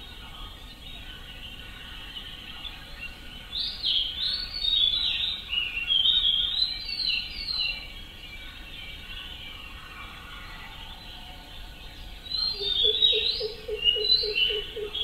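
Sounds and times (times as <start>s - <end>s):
songbird whistled notes: 12.2s - 15.0s.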